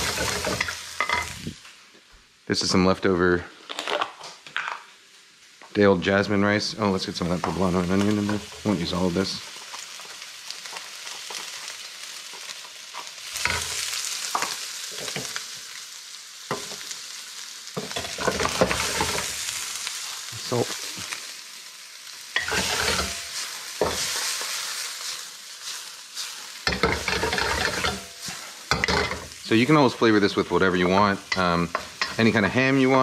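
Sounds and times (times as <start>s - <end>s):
food sizzling in oil in a wok: 0.0s - 1.8s, 6.9s - 33.0s
wooden spatula scraping a pan: 17.8s - 19.3s, 22.4s - 29.3s.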